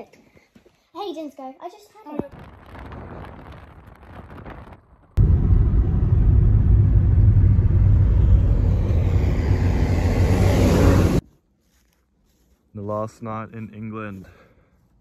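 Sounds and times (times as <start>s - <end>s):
car driving rumble from inside: 5.2s - 11.2s.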